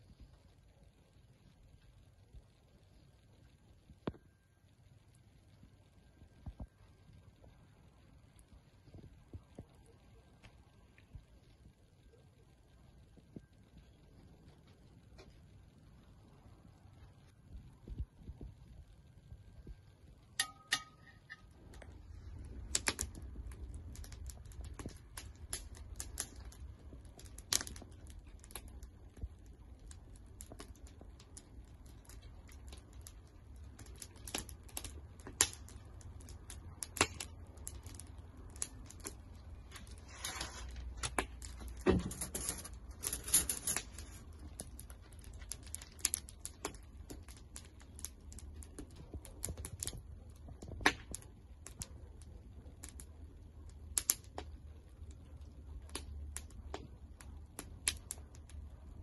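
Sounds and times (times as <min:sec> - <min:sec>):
low rumble of flames: 0:00.0 - 0:59.0
wood fire crackling and popping: 0:00.0 - 0:59.0
metal skewers clinking: 0:20.4 - 0:21.5.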